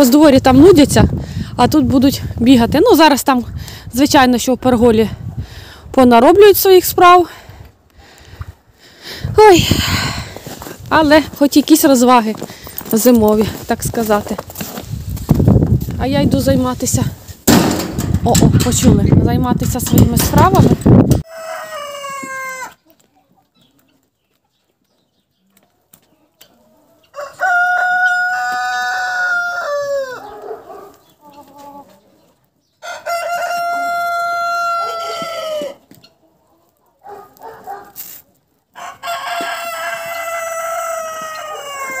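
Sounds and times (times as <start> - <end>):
roosters crowing: 21.2 - 22.8, 26.9 - 31.0, 32.8 - 36.0, 38.7 - 42.0.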